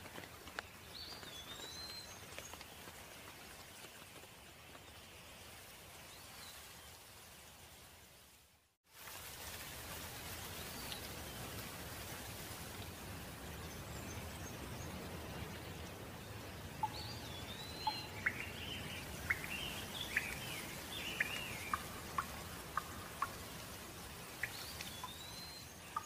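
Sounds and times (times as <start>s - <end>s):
steady rain: 0.0s - 26.0s
songbird singing: 0.5s - 2.9s, 13.4s - 26.0s
falling drops ticking: 16.8s - 23.7s.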